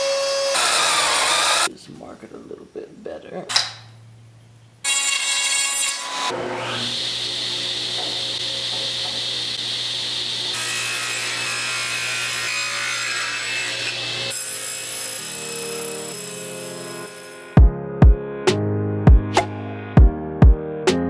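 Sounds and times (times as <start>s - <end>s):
table saw cutting wood: 0.0s - 1.7s, 4.8s - 17.6s.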